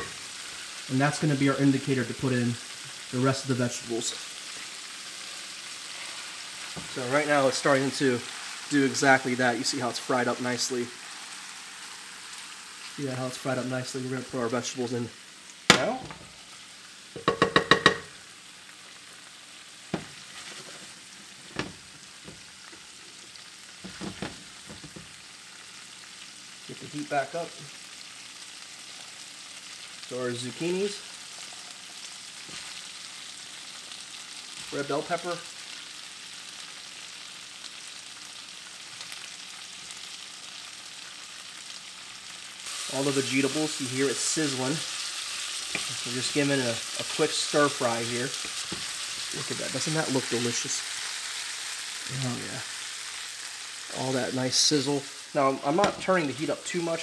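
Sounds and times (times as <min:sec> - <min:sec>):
aromatics sizzling in oil: 0:00.0 - 0:57.0
knocks on skillet: 0:15.7 - 0:16.3, 0:17.2 - 0:18.1.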